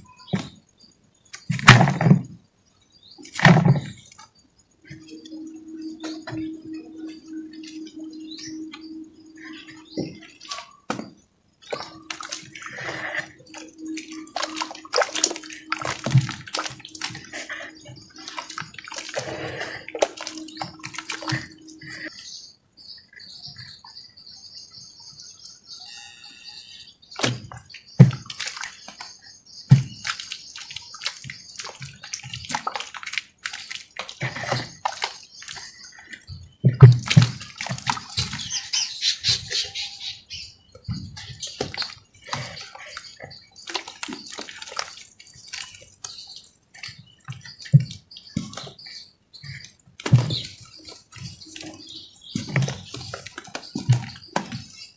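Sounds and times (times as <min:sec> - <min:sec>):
heavy plops in mud: 0:01.5 - 0:02.3, 0:09.5 - 0:22.1, 0:27.2 - 0:29.1, 0:29.7 - 0:35.8, 0:36.7 - 0:38.6, 0:40.9 - 0:46.2, 0:46.8 - 0:48.8, 0:49.4 - 0:54.8
low steady hum: 0:03.8 - 0:22.6
hands squelching in mud: 0:11.6 - 0:22.1, 0:28.1 - 0:29.1, 0:29.8 - 0:36.0, 0:41.4 - 0:48.8.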